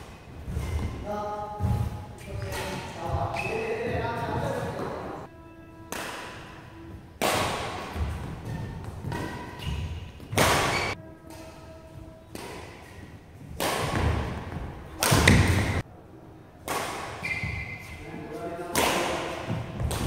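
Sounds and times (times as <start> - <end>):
rackets striking shuttlecock: 0.0 - 4.8, 5.8 - 15.8, 16.6 - 18.0, 18.6 - 20.0
footwork thuds: 0.0 - 5.0, 6.3 - 11.0, 19.2 - 20.0.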